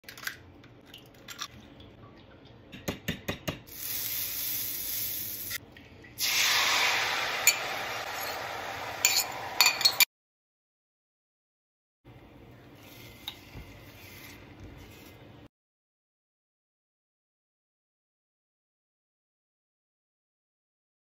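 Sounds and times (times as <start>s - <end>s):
eggs sizzling in a pan: 3.7s - 5.6s, 6.2s - 10.1s
butter sizzling in a skillet: 6.2s - 10.0s.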